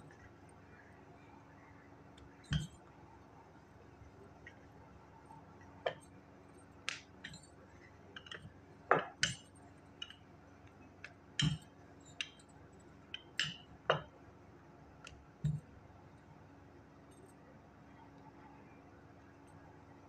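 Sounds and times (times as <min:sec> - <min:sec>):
bangles clinking: 0:11.4 - 0:14.1.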